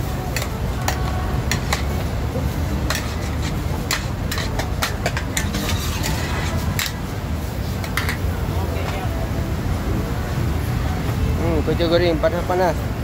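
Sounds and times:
metal ladles scraping woks: 0:00.3 - 0:08.3.

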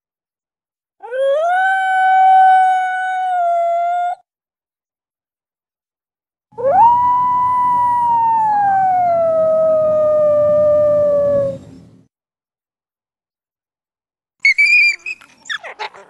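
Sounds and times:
dog howling: 0:06.6 - 0:11.8
low background rumble: 0:06.7 - 0:12.1.

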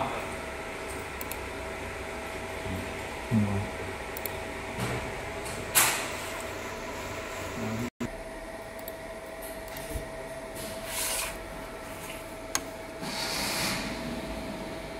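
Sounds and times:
laser machine hum with thin tone: 0:05.8 - 0:13.2.

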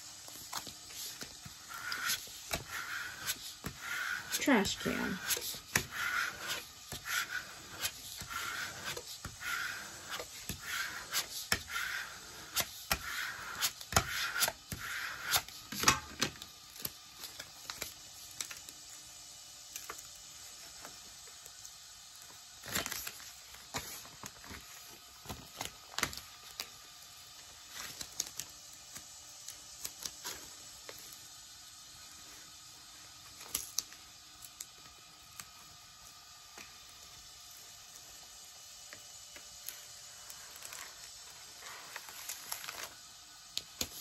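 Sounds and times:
plastic scraper rubbing vinyl sheet: 0:00.3 - 0:16.0
vinyl peeling crackles and clicks: 0:27.6 - 0:31.2, 0:39.3 - 0:44.0.

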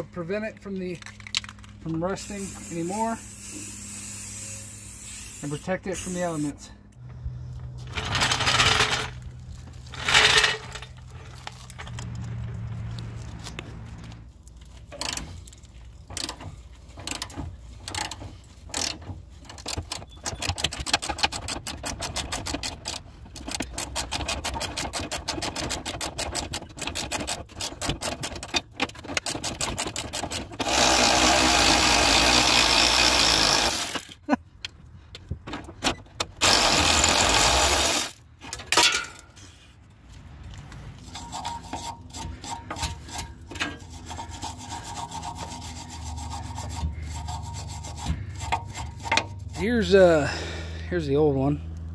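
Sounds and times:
cordless electric ratchet whirring: 0:02.3 - 0:05.6, 0:29.4 - 0:34.2, 0:36.4 - 0:38.2
hand ratchet clicking rapidly: 0:17.0 - 0:34.1.

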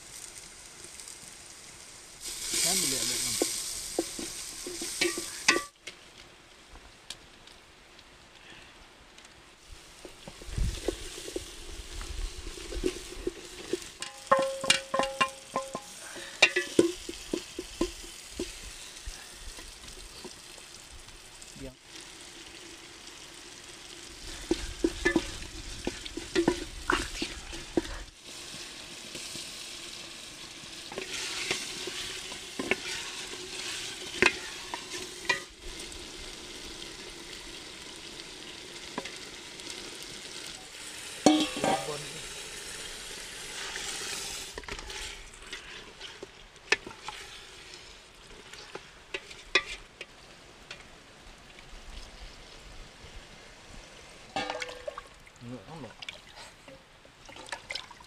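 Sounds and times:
food sizzling in a pot: 0:00.0 - 0:06.1, 0:09.6 - 0:55.6
wooden spatula scraping a pot: 0:24.3 - 0:28.0, 0:30.9 - 0:35.5, 0:43.6 - 0:47.8, 0:48.4 - 0:50.0.

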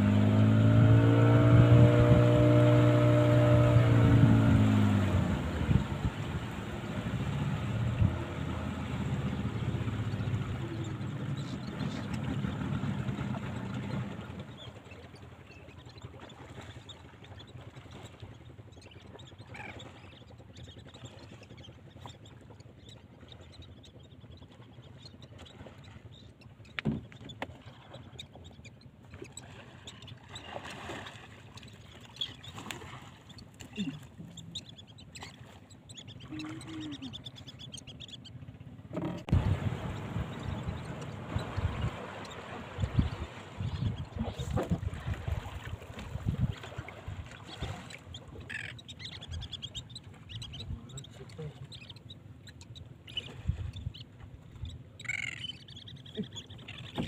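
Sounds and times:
boat motor running: 0:00.0 - 0:57.0
seabirds calling: 0:00.0 - 0:57.0.

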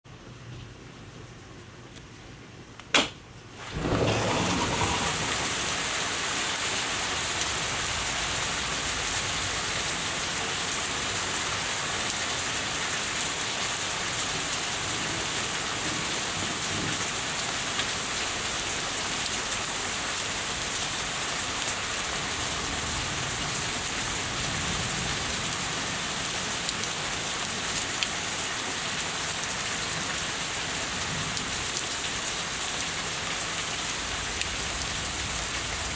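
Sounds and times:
sharp click: 0:02.8 - 0:03.2
low thunder rumbling: 0:03.6 - 0:06.2
heavy rain pouring: 0:03.6 - 0:35.9.

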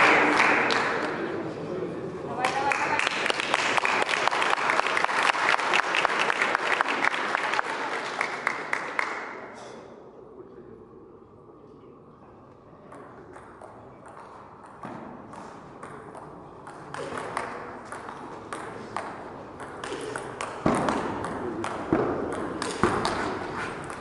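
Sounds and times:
crowd voices: 0:00.0 - 0:05.1.

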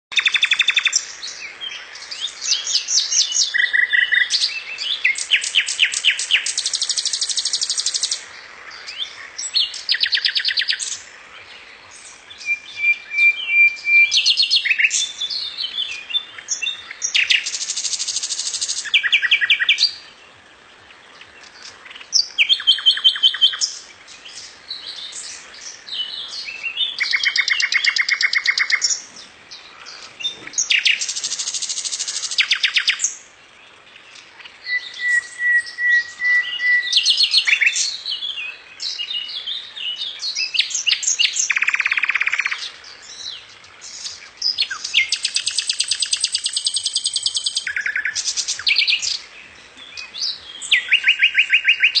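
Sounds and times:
birds trilling chirps: 0:00.1 - 0:52.0
bird whistled note: 0:34.8 - 0:37.0.

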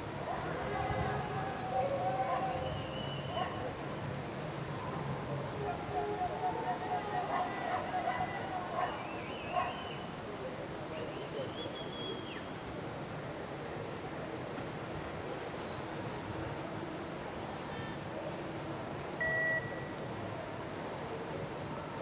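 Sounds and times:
rushing whitewater: 0:00.0 - 0:22.0
short electronic beep: 0:19.2 - 0:19.8.

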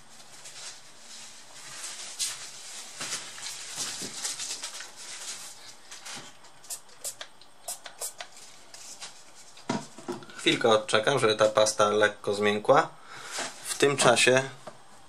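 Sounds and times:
tissue rustling: 0:00.0 - 0:06.3
spray bottle squirts: 0:06.7 - 0:08.3.

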